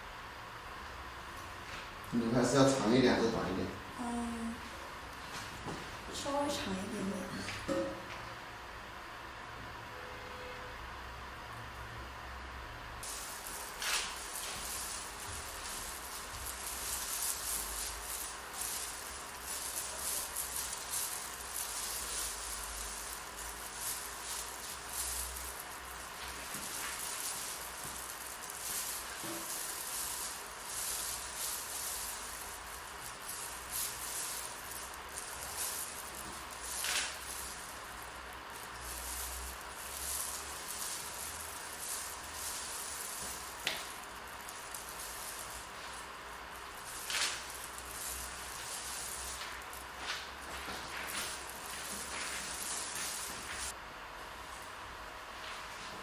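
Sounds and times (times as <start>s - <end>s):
brush rustling through hair: 13.0s - 53.8s.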